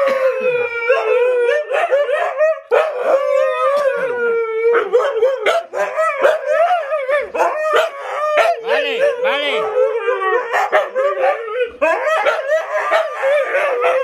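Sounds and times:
dogs howling: 0.0 - 14.0.

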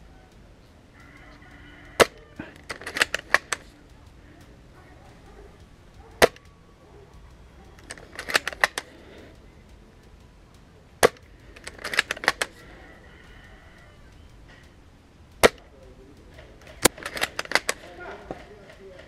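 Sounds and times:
rifle bolt clicking: 1.0 - 19.0
airsoft rifle shots: 1.8 - 6.7, 7.6 - 9.3, 11.0 - 13.0, 15.4 - 19.0.

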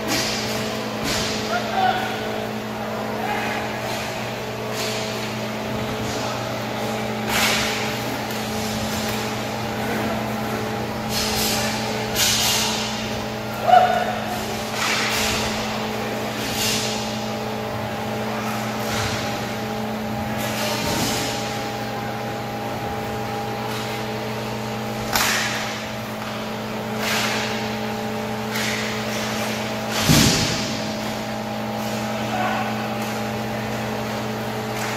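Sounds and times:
hockey sticks and puck clacking: 0.0 - 1.8, 6.8 - 10.0, 11.1 - 13.0, 13.6 - 17.0, 25.0 - 31.2, 31.8 - 34.9
mechanical hum: 0.0 - 34.9.

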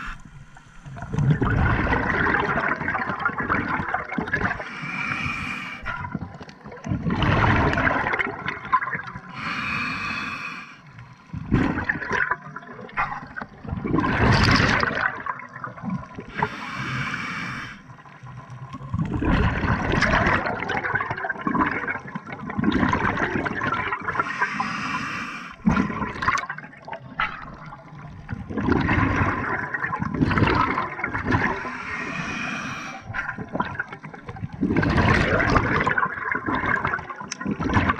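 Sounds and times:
regulator inhale hiss: 0.0 - 1.1, 4.6 - 5.9, 9.3 - 11.0, 16.3 - 17.8, 24.2 - 25.7, 31.4 - 33.1
exhaled bubbles gurgling: 0.0 - 37.9.

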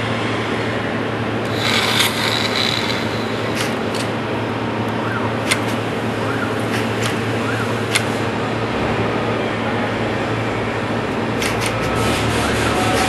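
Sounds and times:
machine humming and hissing: 0.0 - 13.0
high-pitched rasp: 1.5 - 3.8, 11.8 - 13.0
sharp clicks: 1.5 - 4.1, 5.4 - 5.8, 7.9 - 8.2.

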